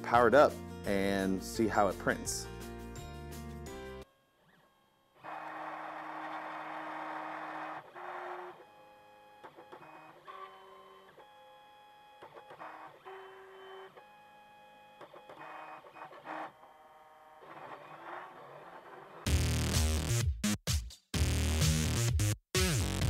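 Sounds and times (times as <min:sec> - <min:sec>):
printer stepper motors whirring: 0:05.2 - 0:19.3.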